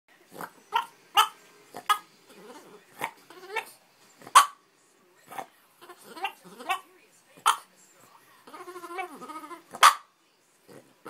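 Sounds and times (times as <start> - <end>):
dog barking: 0.8 - 2.0, 3.0 - 4.6, 6.2 - 7.7, 9.0 - 10.1
dog warbling vocal noises: 5.3 - 7.7, 8.5 - 10.1.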